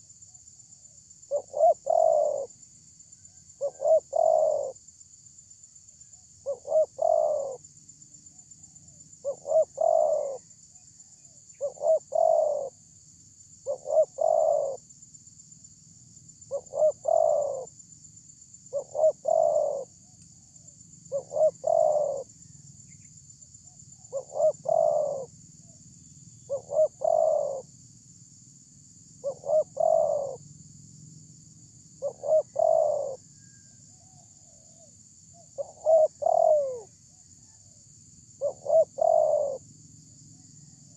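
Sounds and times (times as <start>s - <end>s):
faint high-pitched hiss: 0.0s - 40.9s
dove cooing: 1.3s - 2.6s, 3.6s - 4.8s, 6.4s - 7.6s, 8.6s - 10.4s, 11.6s - 12.8s, 13.6s - 14.8s, 16.5s - 17.7s, 18.7s - 19.9s, 21.1s - 22.4s, 24.0s - 25.3s, 26.5s - 27.7s, 29.2s - 30.4s, 32.0s - 37.6s, 38.4s - 39.7s.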